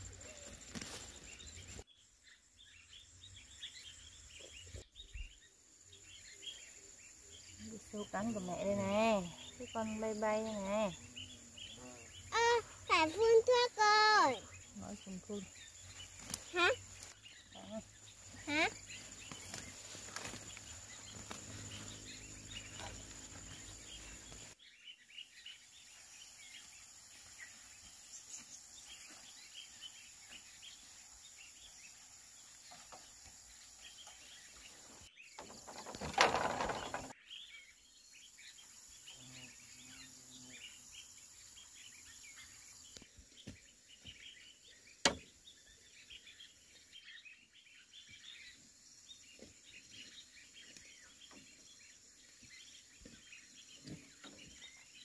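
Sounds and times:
small birds chirping: 0.0 - 55.0.

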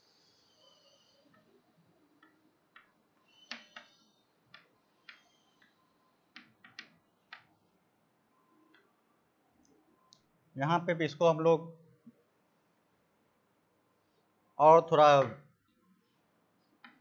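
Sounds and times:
chalk tapping and scraping on blackboard: 2.2 - 7.5.

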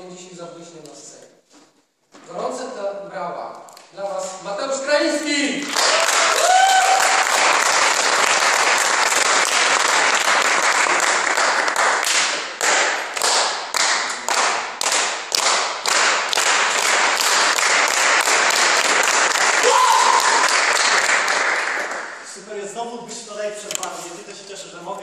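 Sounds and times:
rhythmic clapping in unison: 5.5 - 22.4
audience applauding: 5.6 - 22.3
person shouting: 19.6 - 20.4.

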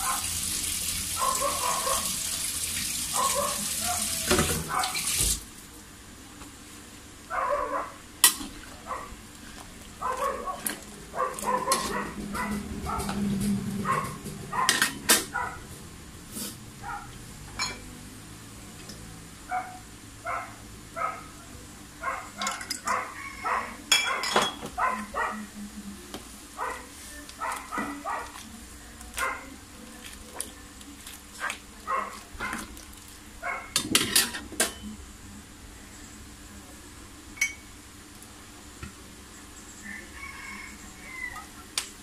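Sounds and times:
dog barking: 0.0 - 0.4, 1.2 - 2.2, 3.1 - 5.1, 7.3 - 8.0, 8.8 - 9.2, 10.0 - 13.2, 13.8 - 15.7, 16.8 - 17.2, 19.5 - 21.4, 22.0 - 25.6, 26.6 - 28.4, 29.2 - 29.5, 31.4 - 32.7, 33.4 - 33.8.

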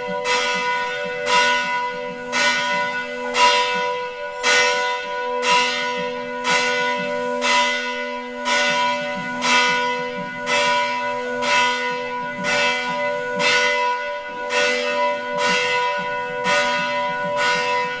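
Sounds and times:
temple bell ringing: 0.0 - 18.0.

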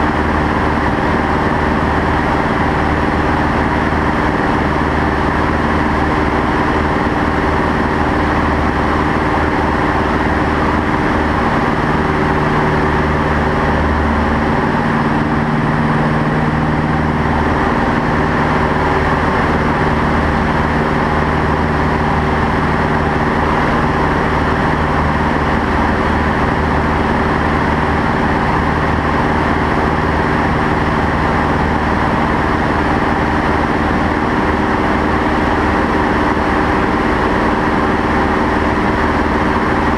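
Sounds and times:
aircraft engine and propeller droning: 0.0 - 39.9.

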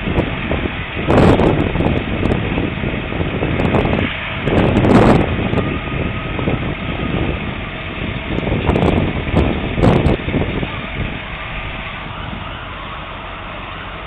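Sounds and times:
fire engines rumbling: 0.0 - 14.0
wind buffeting microphone: 0.0 - 14.0.

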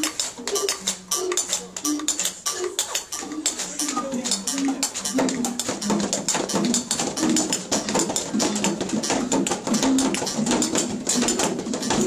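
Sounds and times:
homemade shakers rattling: 0.0 - 12.0.

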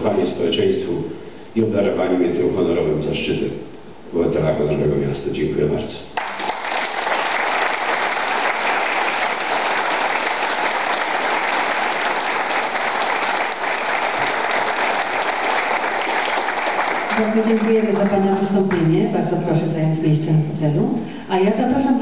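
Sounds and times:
audience applause: 6.2 - 18.5.

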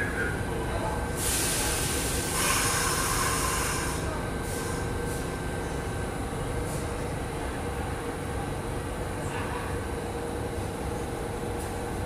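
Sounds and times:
subway train rumbling: 0.0 - 12.0
air hissing: 1.2 - 5.4.

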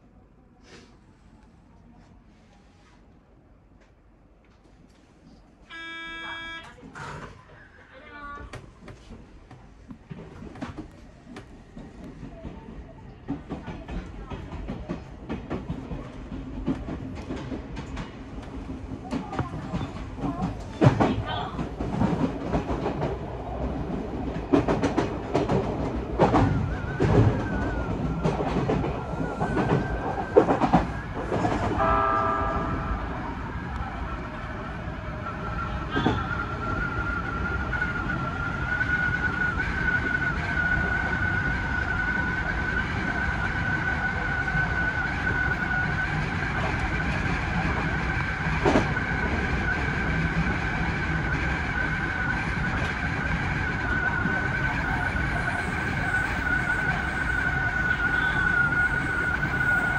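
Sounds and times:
brief tone: 5.7 - 6.8
train wheels rumbling on rail: 8.4 - 59.9.

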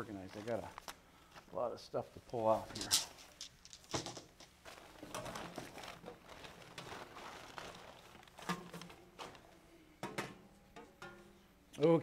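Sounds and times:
plastic bag rustling: 0.0 - 0.9, 2.3 - 9.6.

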